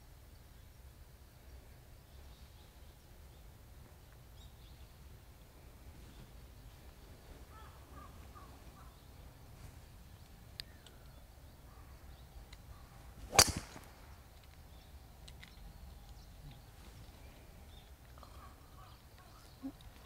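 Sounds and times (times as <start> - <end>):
golf club striking ball: 13.2 - 14.2.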